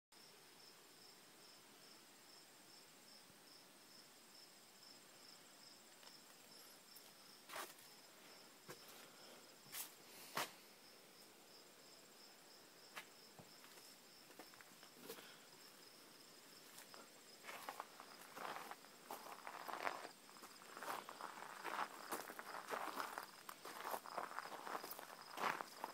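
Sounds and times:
high insect trill: 10.9 - 25.9.

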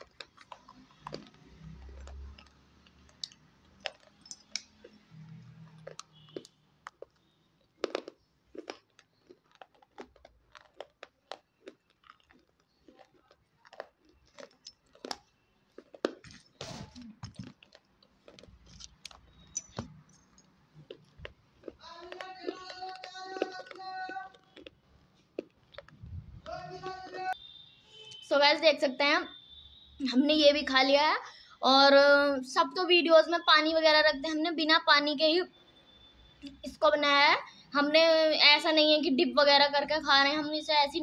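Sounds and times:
chewing hard clay pieces: 0.0 - 27.4.

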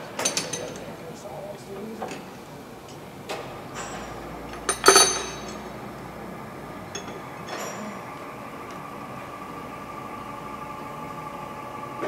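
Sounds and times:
loud ringing metal clank: 3.5 - 5.9
metal-on-metal clinks: 3.8 - 5.8.

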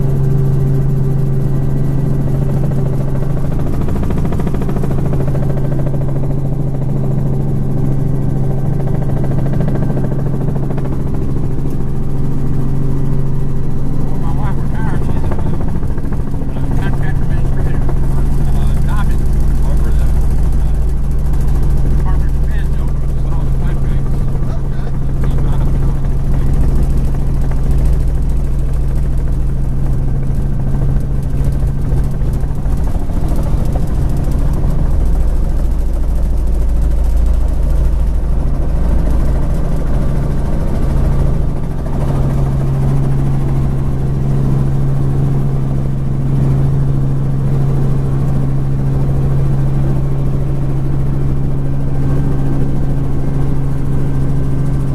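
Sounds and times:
helicopter engine and rotor: 0.0 - 54.9.

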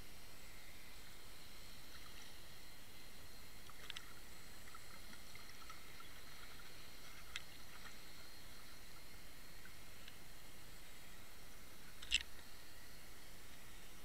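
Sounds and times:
faint clicks: 3.6 - 8.0.

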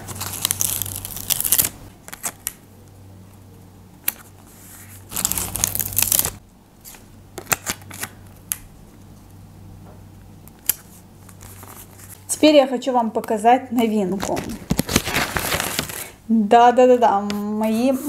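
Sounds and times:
paper sticker rustling: 4.1 - 6.4, 13.8 - 16.2.

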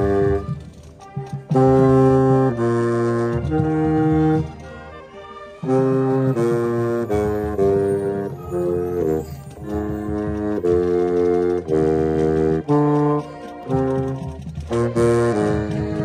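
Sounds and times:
baritone saxophone: 0.0 - 16.0
marching band playing chords: 0.0 - 16.0.

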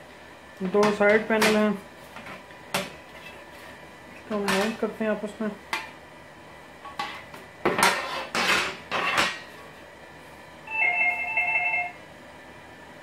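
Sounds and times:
short electronic ringing tone: 10.7 - 12.0.

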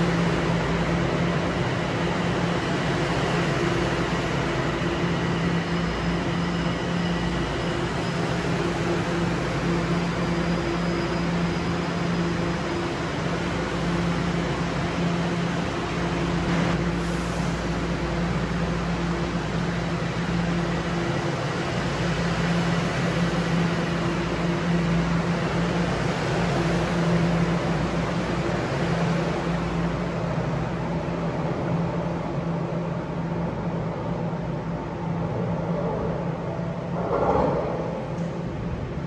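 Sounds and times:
subway train equipment hum: 0.0 - 39.0.

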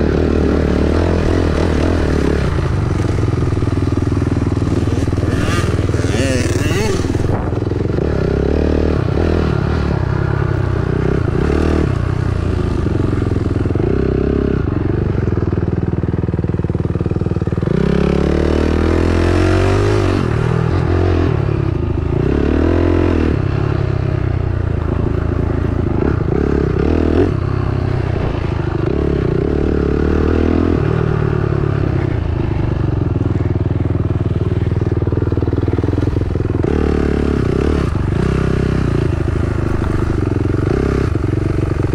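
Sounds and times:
dirt bike engine revving: 0.0 - 15.0, 17.6 - 21.5, 35.3 - 41.9.

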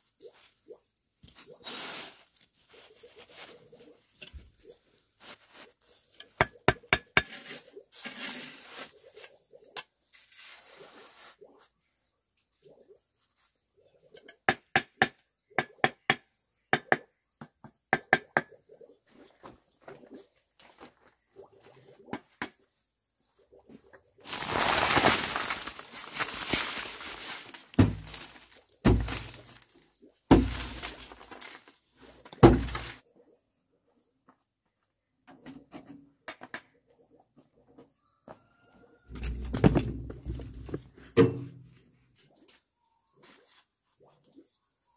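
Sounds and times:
mortar poured onto plastic tarp: 1.3 - 4.0, 7.9 - 9.3, 24.2 - 29.7, 30.3 - 33.0.

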